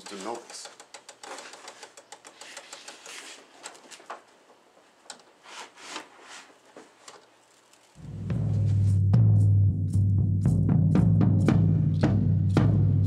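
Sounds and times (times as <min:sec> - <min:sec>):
servo chattering clicks: 0:00.0 - 0:03.8.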